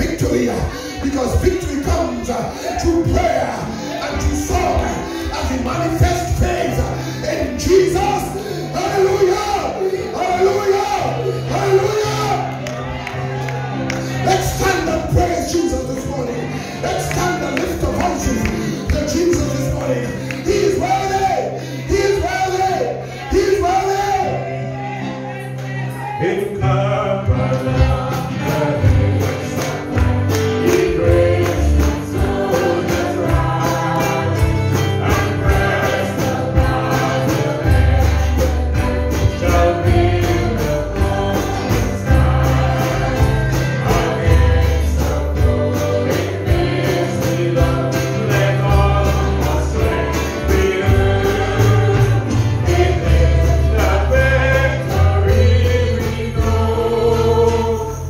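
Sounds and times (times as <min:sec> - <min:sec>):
band playing: 0:00.0 - 0:58.0
several voices singing together: 0:00.1 - 0:58.0
steady drum beat: 0:27.8 - 0:57.1.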